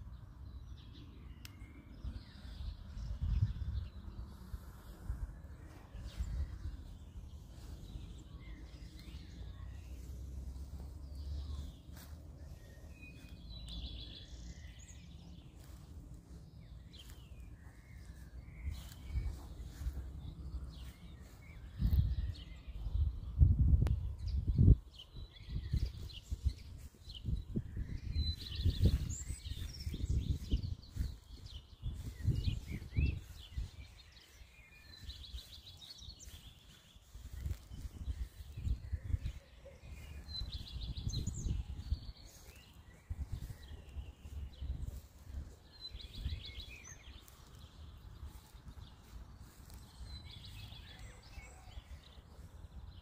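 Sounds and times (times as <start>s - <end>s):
small birds chirping: 0.0s - 53.0s
songbirds singing: 0.0s - 53.0s
steady low rumble: 1.9s - 24.8s
wind buffeting on microphone: 2.0s - 11.0s, 16.2s - 53.0s.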